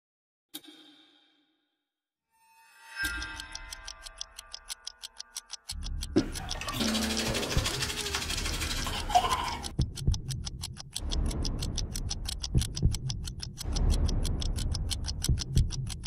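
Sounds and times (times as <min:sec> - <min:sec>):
tense film score pulses: 0:02.8 - 0:16.0
fast ticking: 0:03.1 - 0:16.0.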